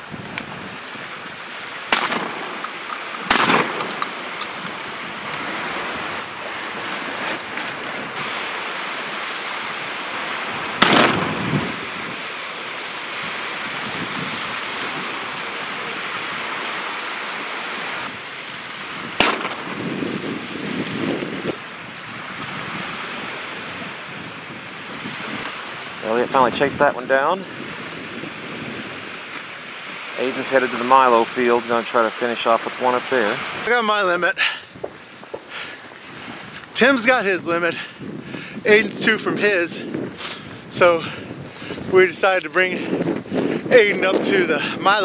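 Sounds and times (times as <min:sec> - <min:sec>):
waves lapping: 0:00.0 - 0:45.0
wind buffeting microphone: 0:00.0 - 0:45.0
shotgun shots: 0:01.9 - 0:04.6, 0:10.8 - 0:11.5, 0:19.2 - 0:19.8.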